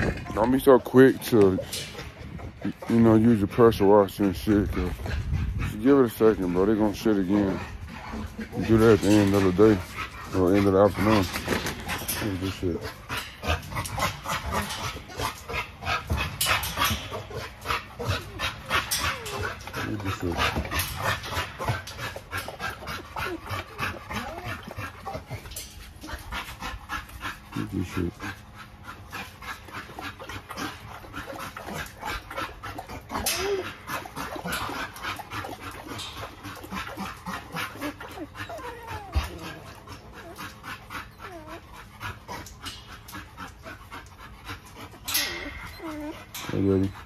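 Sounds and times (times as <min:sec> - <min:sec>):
dog panting rapidly: 0:00.0 - 0:47.0
dog whining: 0:17.1 - 0:20.0, 0:23.2 - 0:25.3, 0:33.0 - 0:34.5, 0:37.6 - 0:42.0, 0:45.1 - 0:47.0.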